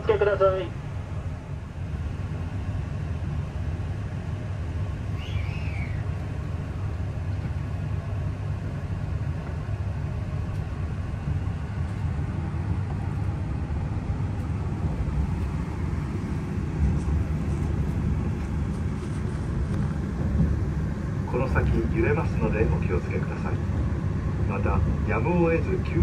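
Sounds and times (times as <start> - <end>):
train cabin rumble: 0.0 - 26.0.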